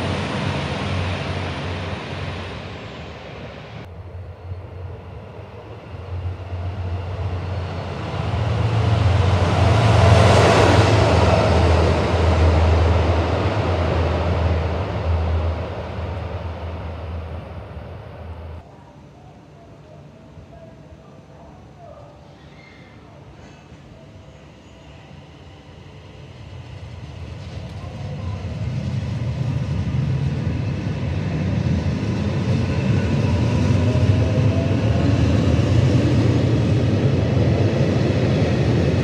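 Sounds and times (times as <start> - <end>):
diesel locomotive engine throb: 0.0 - 18.6
diesel train running: 0.0 - 18.6, 23.9 - 39.0
train rail noise: 0.0 - 39.0.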